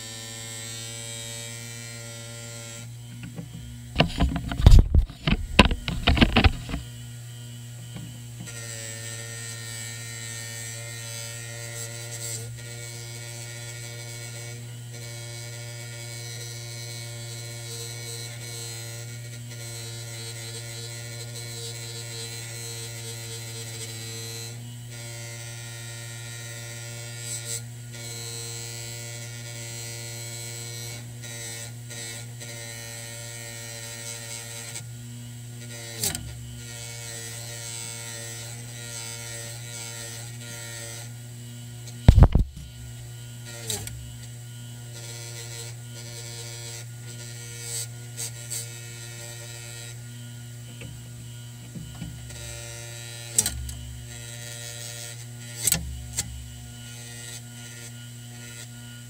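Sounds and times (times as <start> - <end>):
bench grinder motor running: 0.0 - 59.0
short sharp tap: 42.1 - 42.6.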